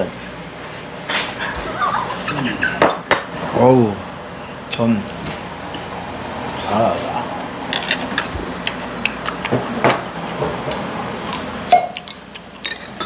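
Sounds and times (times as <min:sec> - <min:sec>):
chopsticks and dishes clinking: 0:07.7 - 0:08.3, 0:11.7 - 0:13.0.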